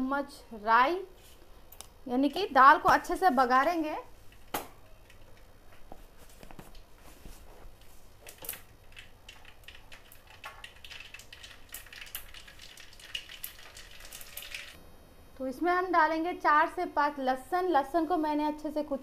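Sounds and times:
light sizzle: 6.7s - 15.6s.

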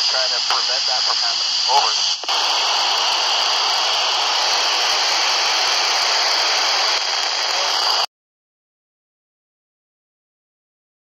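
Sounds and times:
radio static hiss: 0.0s - 8.1s.

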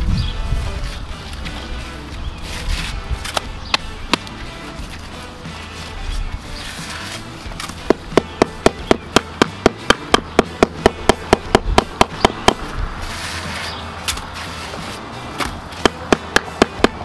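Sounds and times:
rubber mallet tapping stone: 7.9s - 12.6s, 15.8s - 17.0s.

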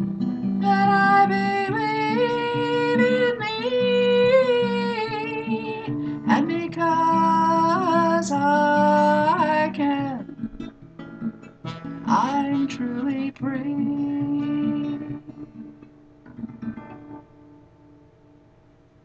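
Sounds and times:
strummed acoustic guitar: 0.0s - 18.4s
woman singing long notes: 0.6s - 10.3s, 12.1s - 15.5s.

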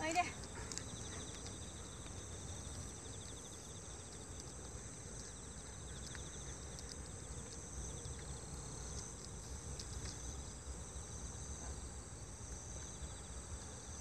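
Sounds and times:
insects trilling: 0.0s - 14.0s.

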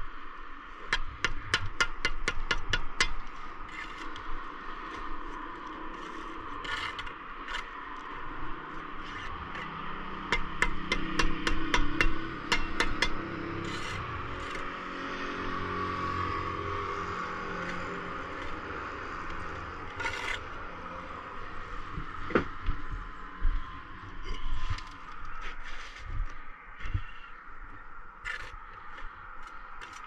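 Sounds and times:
trowel tapping bricks: 0.9s - 4.0s, 10.3s - 14.6s
trowel scraping mortar: 3.6s - 4.2s, 5.9s - 7.8s, 12.6s - 14.7s, 17.4s - 20.5s, 28.2s - 30.0s.

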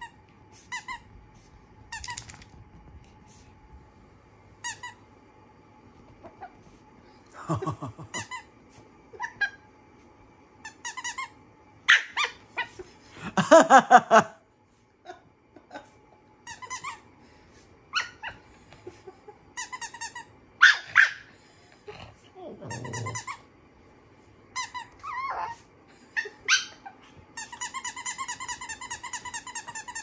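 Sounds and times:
small dogs yipping and howling: 11.9s - 12.8s, 17.9s - 18.5s, 24.9s - 27.1s.

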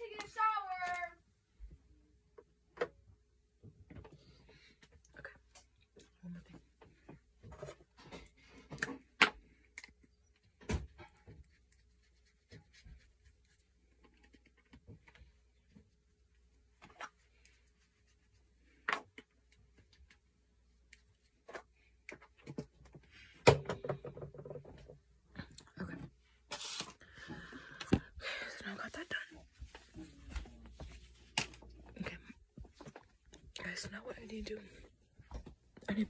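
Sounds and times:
knocks and clicks of handling things: 22.1s - 25.0s.

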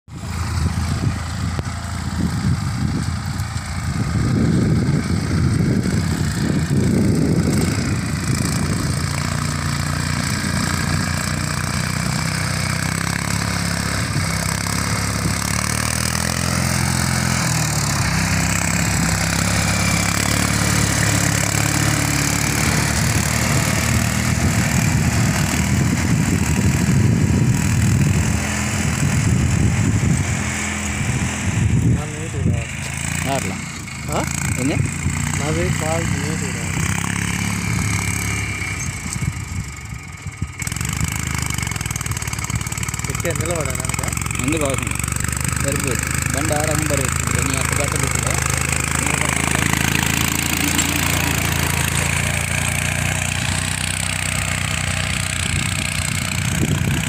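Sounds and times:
tractor engine running under load: 0.1s - 57.0s.

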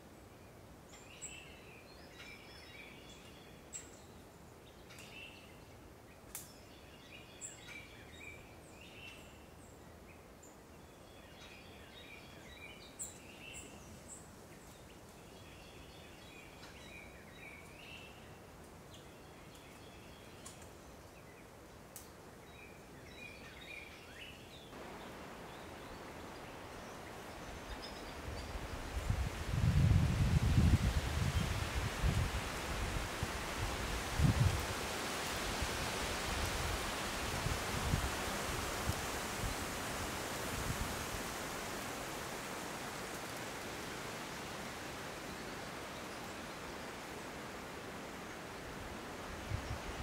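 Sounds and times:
wind rustling through trees: 0.0s - 50.0s
wind rumble on microphone: 27.4s - 41.6s, 49.2s - 50.0s.

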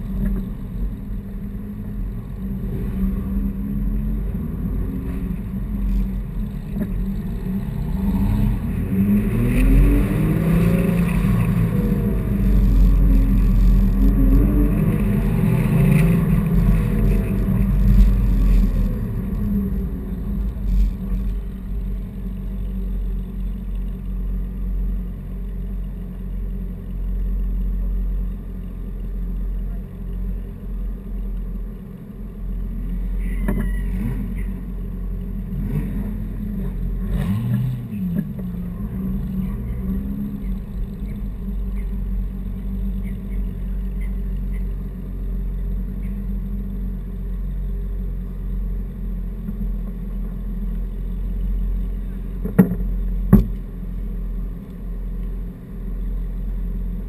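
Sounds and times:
car engine running low: 0.0s - 57.0s
engine revving: 2.5s - 22.0s, 35.4s - 42.0s.

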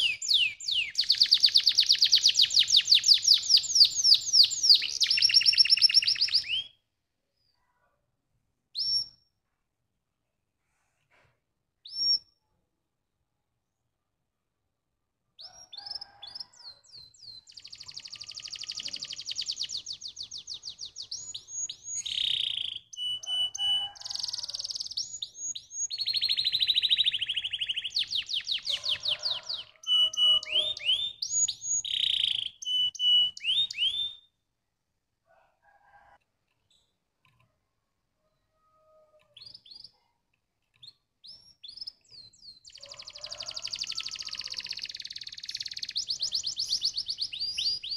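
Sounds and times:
canary singing trills: 0.0s - 6.8s, 15.4s - 34.3s, 38.6s - 40.1s, 40.7s - 47.9s.

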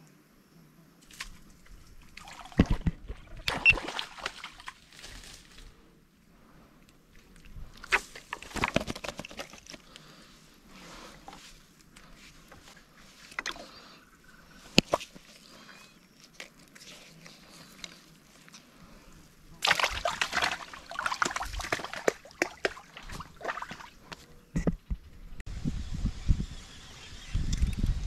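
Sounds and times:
water splashing: 1.1s - 5.0s, 19.6s - 24.2s.

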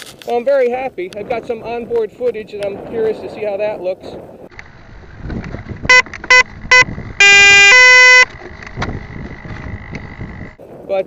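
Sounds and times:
electronic motor controller beeps: 5.9s - 8.3s.

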